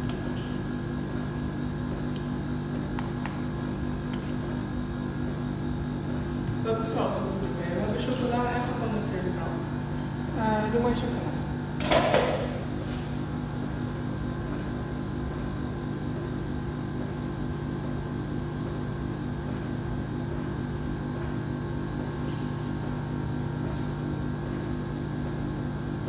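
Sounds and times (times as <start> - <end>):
refrigeration compressor humming: 0.0 - 26.0.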